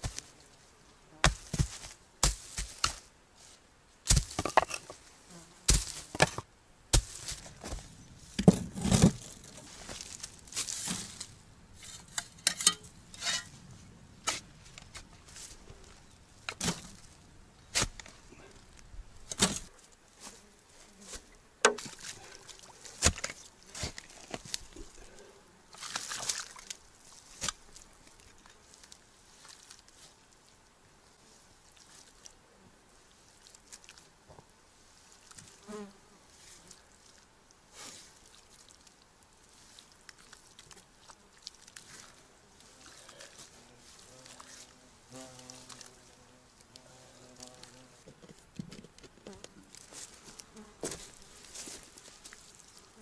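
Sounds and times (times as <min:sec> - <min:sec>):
pick striking soil: 0:01.2 - 0:03.1, 0:04.0 - 0:05.0, 0:05.7 - 0:13.5, 0:14.2 - 0:15.6, 0:16.5 - 0:17.1, 0:17.7 - 0:18.2, 0:19.3 - 0:19.7, 0:23.0 - 0:24.6.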